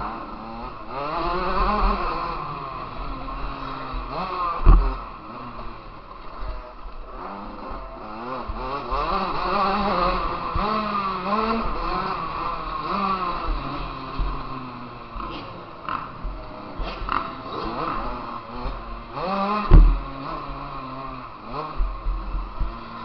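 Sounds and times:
motocross bike engine revving: 0:00.0 - 0:23.0
loud thump: 0:19.6 - 0:20.1.

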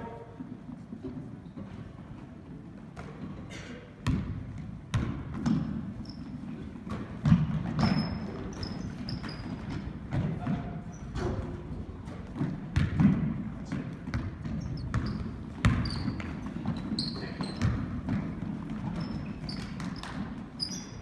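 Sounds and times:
basketball bouncing on hardwood: 0:04.0 - 0:05.8, 0:06.8 - 0:10.8, 0:12.2 - 0:20.4
sneaker squeaks: 0:04.9 - 0:11.5, 0:14.1 - 0:21.0.

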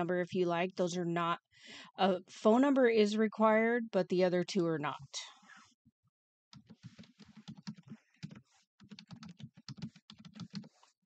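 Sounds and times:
typing on a computer keyboard: 0:06.6 - 0:10.9.

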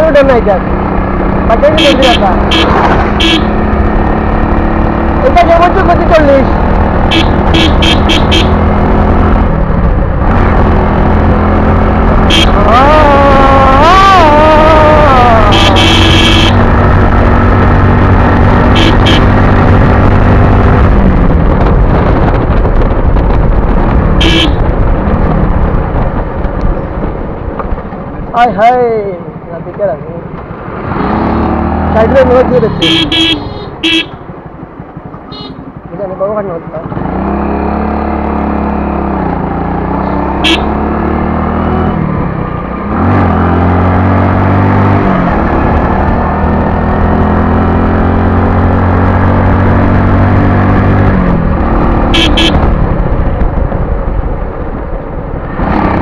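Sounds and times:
motorcycle engine: 0:00.0 - 0:56.0
rushing wind: 0:00.0 - 0:56.0
vehicle horn toots: 0:01.8 - 0:03.6, 0:07.1 - 0:08.6, 0:12.3 - 0:12.6, 0:15.4 - 0:16.6, 0:18.7 - 0:19.4, 0:24.2 - 0:24.6, 0:32.6 - 0:34.2, 0:35.3 - 0:35.7, 0:40.4 - 0:40.8, 0:52.1 - 0:52.7.

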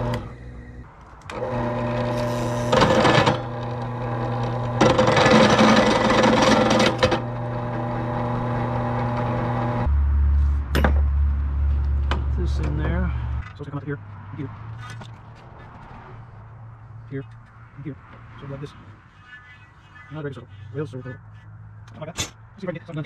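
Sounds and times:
drill press motor humming: 0:00.0 - 0:09.9
drill bit cutting steel: 0:01.3 - 0:09.9.

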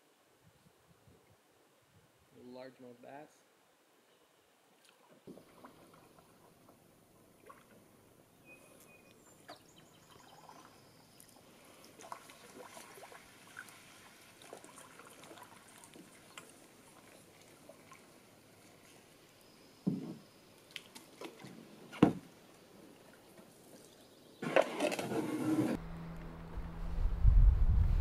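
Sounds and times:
water drips: 0:10.1 - 0:18.7
paddle strokes in water: 0:10.1 - 0:19.2, 0:20.6 - 0:25.8.

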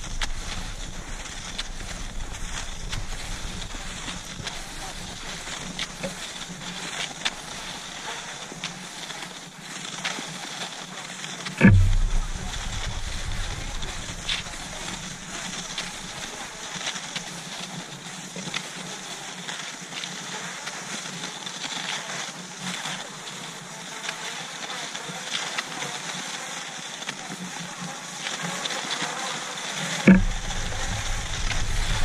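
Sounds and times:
skis swishing on snow: 0:00.0 - 0:22.4
sharp knock: 0:11.6 - 0:16.4, 0:30.1 - 0:32.0.

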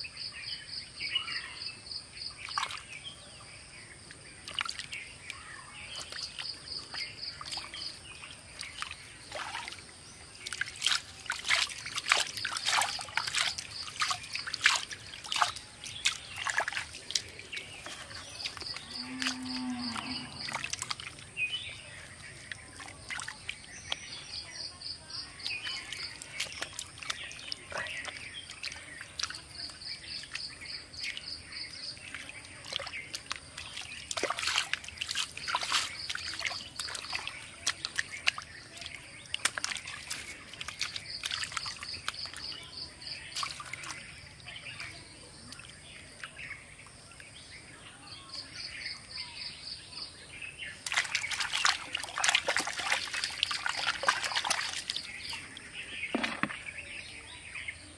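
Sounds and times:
hands splashing through mud: 0:04.4 - 0:19.6, 0:20.4 - 0:21.5, 0:25.4 - 0:31.2, 0:32.0 - 0:42.6, 0:43.2 - 0:44.1, 0:50.7 - 0:56.8.

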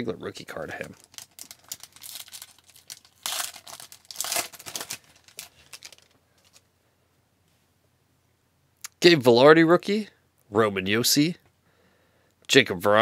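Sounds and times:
wrapper tearing and crinkling: 0:00.9 - 0:06.7.

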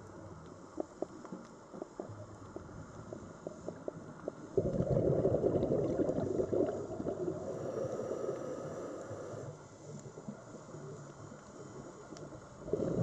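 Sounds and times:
faint clicks: 0:00.0 - 0:04.4, 0:08.3 - 0:12.6
diver's bubbles gurgling: 0:01.9 - 0:08.5, 0:12.6 - 0:13.0.

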